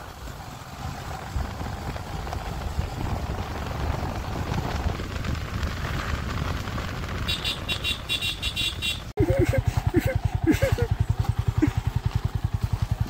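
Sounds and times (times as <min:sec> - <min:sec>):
wind buffeting microphone: 0:00.1 - 0:08.3.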